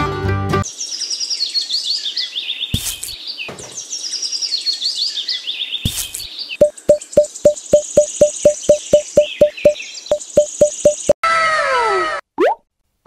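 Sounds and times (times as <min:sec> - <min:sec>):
songbird chirping: 0:00.7 - 0:11.2
fast even ticking: 0:06.6 - 0:11.2.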